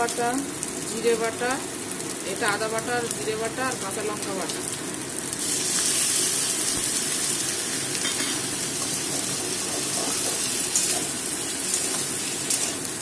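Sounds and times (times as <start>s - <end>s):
paste sizzling in hot oil: 0.0s - 13.0s.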